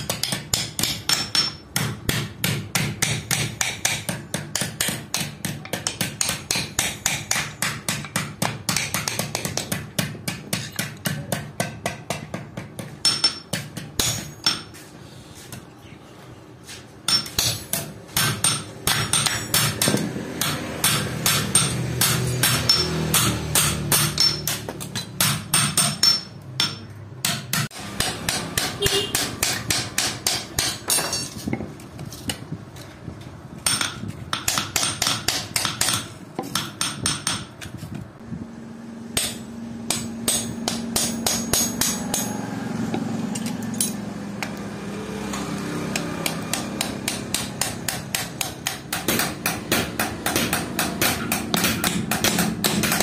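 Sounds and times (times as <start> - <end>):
hammer striking steel on anvil: 0.0 - 14.8, 17.1 - 31.5, 33.6 - 37.7, 39.1 - 44.5, 45.9 - 53.0.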